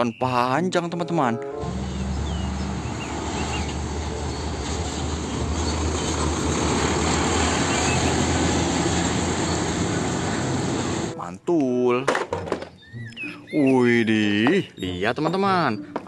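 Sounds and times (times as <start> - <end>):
diesel truck engine drone: 1.6 - 11.2
tyre and road noise: 1.6 - 11.2.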